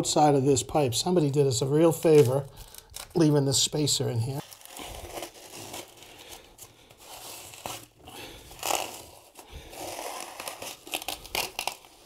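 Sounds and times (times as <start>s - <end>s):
plastic wrap tearing: 2.0s - 3.4s, 4.3s - 12.0s.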